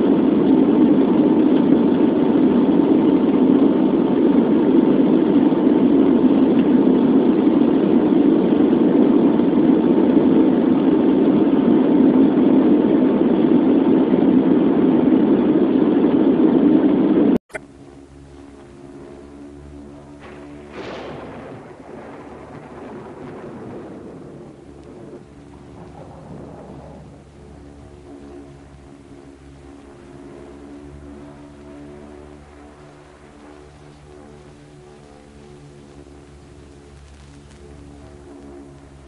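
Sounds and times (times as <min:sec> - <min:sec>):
airliner cabin engine noise: 0:00.0 - 0:39.0
faint steady tone: 0:17.5 - 0:39.0.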